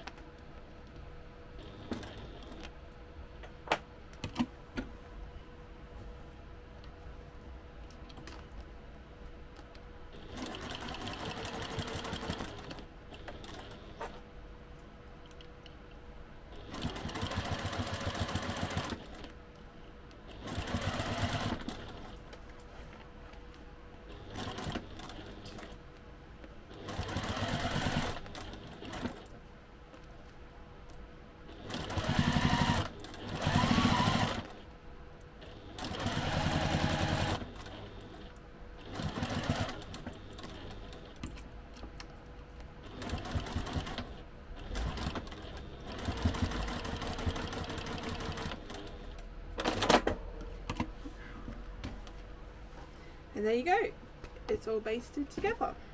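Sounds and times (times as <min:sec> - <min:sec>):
sewing machine stitching: 0:10.2 - 0:14.1, 0:16.6 - 0:19.3, 0:20.3 - 0:22.2, 0:24.1 - 0:25.7, 0:26.7 - 0:29.2, 0:31.5 - 0:34.6, 0:35.4 - 0:41.2, 0:42.8 - 0:49.9.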